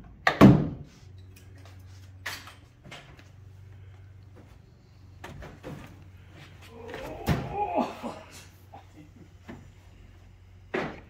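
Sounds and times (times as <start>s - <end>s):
knocks and creaks of truck: 10.6s - 11.0s.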